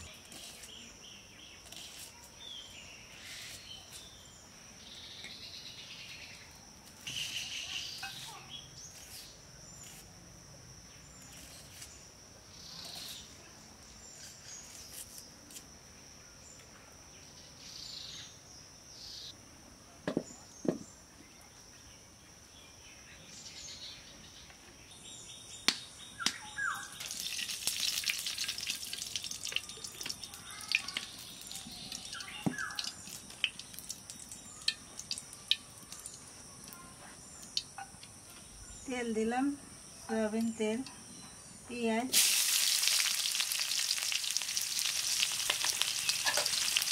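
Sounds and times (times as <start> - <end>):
bird chirps: 0.0 - 10.0, 22.7 - 27.2, 29.5 - 39.0.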